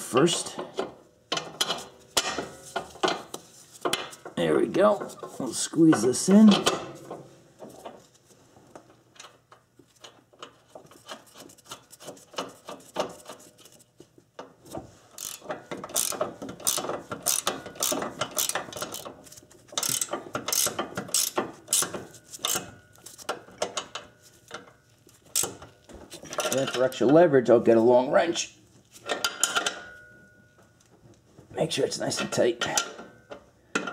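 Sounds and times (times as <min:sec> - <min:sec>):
ratcheting wrench clicking: 0:15.2 - 0:19.2, 0:19.8 - 0:24.0, 0:25.3 - 0:25.6.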